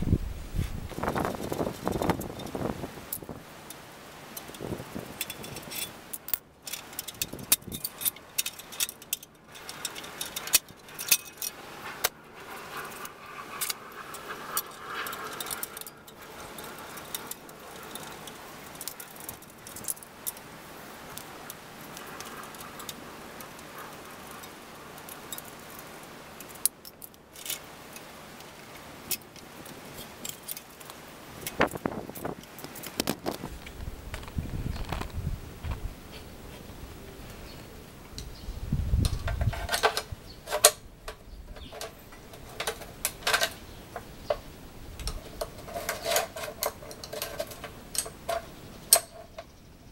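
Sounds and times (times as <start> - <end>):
metal tools clinking on bicycle hub: 4.4 - 20.4, 39.0 - 49.5.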